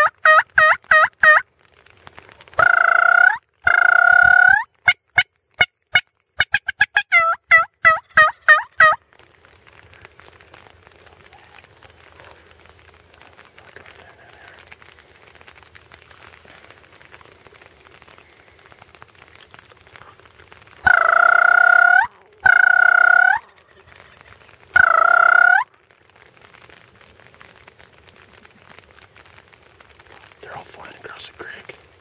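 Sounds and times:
turkey call yelping: 0.0s - 1.4s, 2.6s - 4.7s, 6.4s - 9.0s, 20.8s - 25.7s
faint outdoor background: 0.0s - 32.0s.

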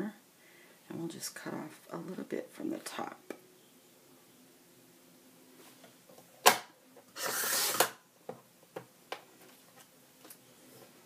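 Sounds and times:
paper trimmer blade slicing paper: 7.2s - 8.0s.

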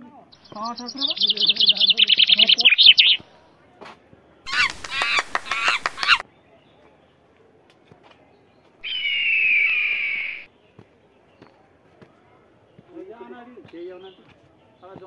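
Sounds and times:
birds chattering trill: 0.0s - 3.2s, 4.5s - 6.2s, 8.8s - 11.6s
bird squawking calls: 0.4s - 3.2s, 4.5s - 6.2s, 8.8s - 10.5s.

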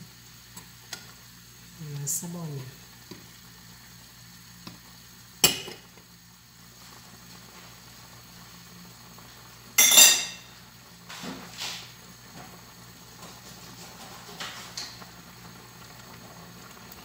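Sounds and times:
metal kitchenware clinking: 9.8s - 10.4s.

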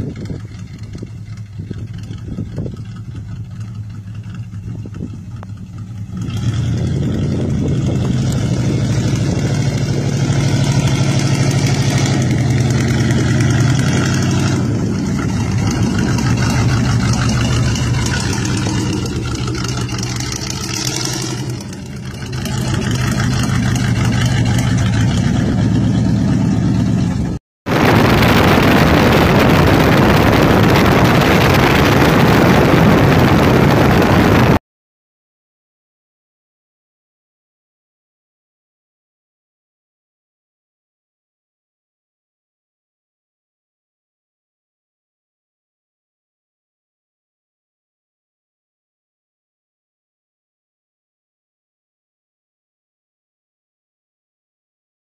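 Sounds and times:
wind and road noise: 0.0s - 34.6s
loud engine revving: 5.8s - 34.6s.

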